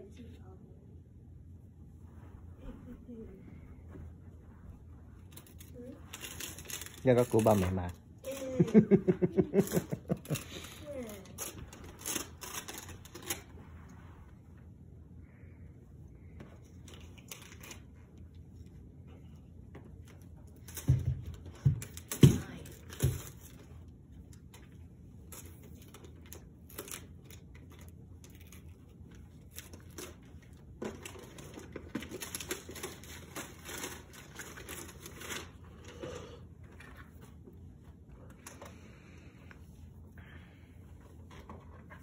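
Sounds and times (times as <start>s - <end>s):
wrapping paper tearing and crinkling: 5.3s - 13.6s, 25.2s - 36.0s.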